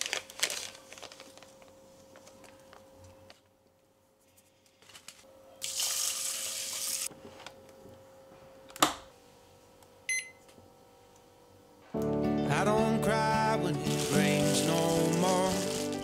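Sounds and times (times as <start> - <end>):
short electronic beep: 10.1 - 10.4.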